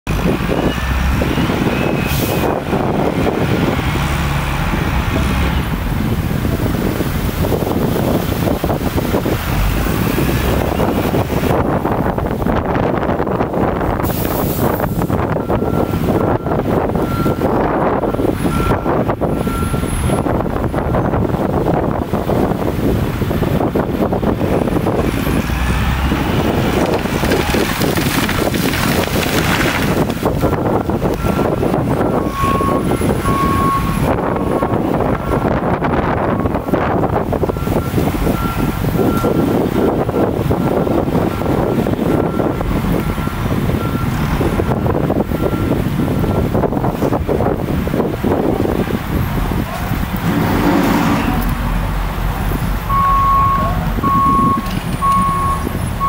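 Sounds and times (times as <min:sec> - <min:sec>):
loader engine running: 0:00.1 - 0:56.0
wind buffeting microphone: 0:00.1 - 0:56.0
rush of branches: 0:26.2 - 0:30.5.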